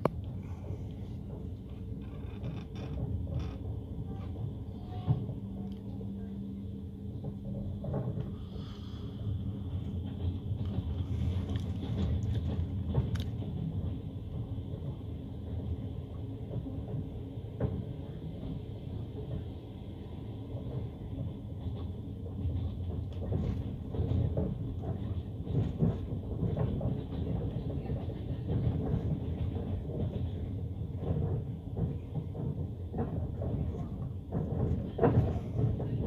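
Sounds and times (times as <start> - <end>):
train rumble inside carriage: 0.0 - 36.0
clatter and knocks: 1.2 - 5.4, 7.2 - 8.4, 9.9 - 15.7, 21.6 - 36.0.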